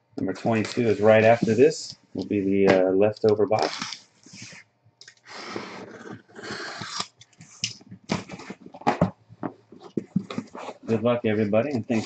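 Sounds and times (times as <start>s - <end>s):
cardboard rustling and scraping: 0.5s - 1.7s, 5.4s - 12.0s.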